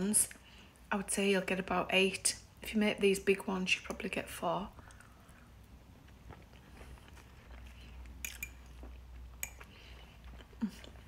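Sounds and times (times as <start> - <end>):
faint chewing: 4.8 - 11.0.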